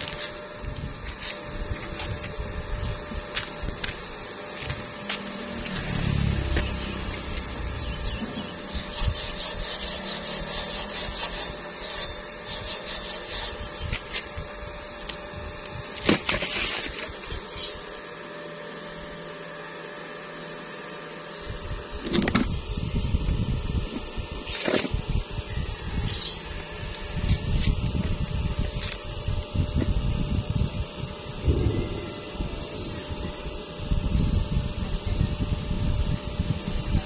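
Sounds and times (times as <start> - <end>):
wire brush rasping on steel: 8.4 - 14.2
rumbling handling noise: 21.6 - 25.6, 26.5 - 35.6.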